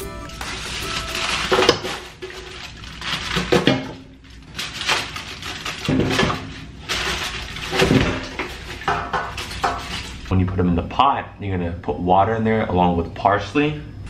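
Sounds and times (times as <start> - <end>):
aluminium foil rustling: 0.0 - 10.3
bones clattering into metal pot: 1.2 - 10.3.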